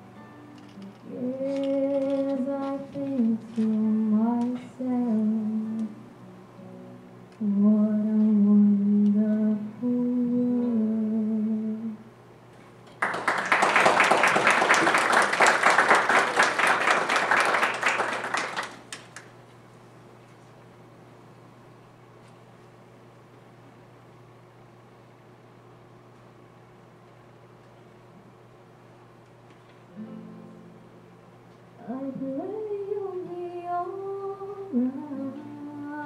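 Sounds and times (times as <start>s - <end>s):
classical guitar: 0.0s - 7.6s, 29.9s - 36.0s
woman singing into a microphone: 1.0s - 6.0s, 7.4s - 12.0s, 31.8s - 36.0s
audience applauding: 12.9s - 19.3s.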